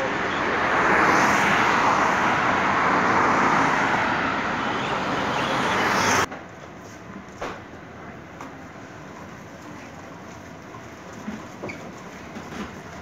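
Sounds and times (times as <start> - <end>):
cars passing: 0.0 - 6.3.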